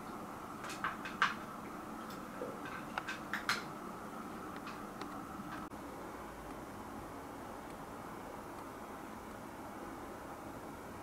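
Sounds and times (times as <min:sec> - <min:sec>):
low background noise: 0:00.0 - 0:11.0.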